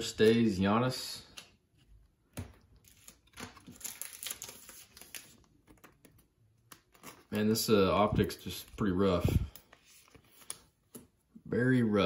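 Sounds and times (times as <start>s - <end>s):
plastic card sleeve crinkling: 2.6s - 11.0s.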